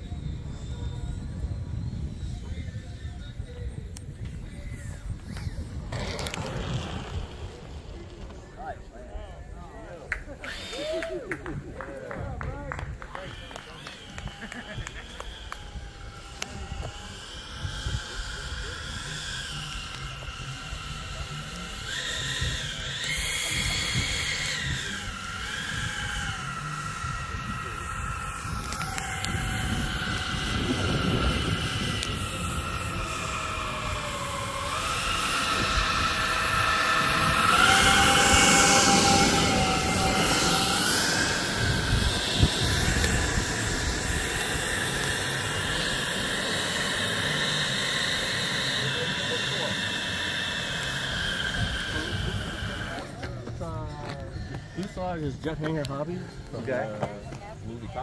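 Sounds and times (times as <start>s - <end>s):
electric ducted fans whining: 0.0s - 58.0s
rush of air: 28.0s - 53.0s.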